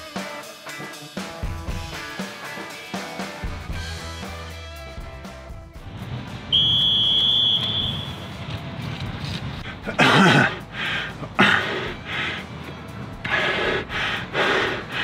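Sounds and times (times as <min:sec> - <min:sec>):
background music: 0:00.0 - 0:15.0
shrill whistle blast: 0:06.5 - 0:08.3.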